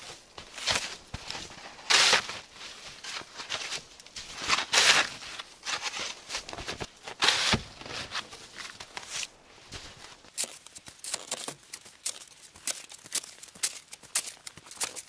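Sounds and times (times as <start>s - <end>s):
snow shovel scraping snow: 0.0s - 9.3s.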